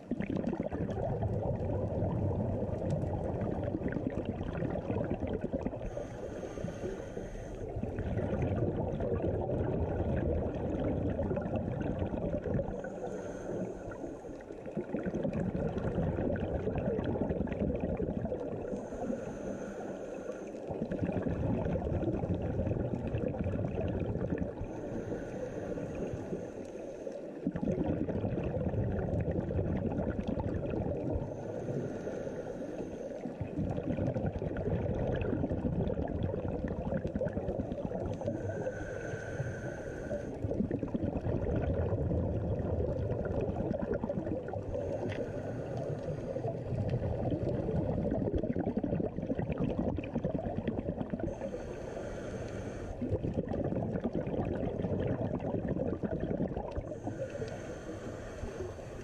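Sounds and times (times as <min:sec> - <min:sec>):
exhaled bubbles underwater: 0:00.0 - 0:59.0
regulator inhalation hiss: 0:05.8 - 0:07.8, 0:12.8 - 0:14.4, 0:18.7 - 0:20.6, 0:24.6 - 0:27.4, 0:31.2 - 0:33.4, 0:38.2 - 0:40.4, 0:44.7 - 0:46.8, 0:51.3 - 0:53.0, 0:56.9 - 0:59.0.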